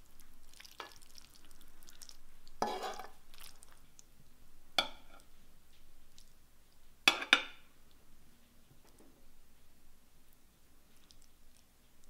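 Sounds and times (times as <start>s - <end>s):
noodles being stirred rustling: 0.0s - 4.1s.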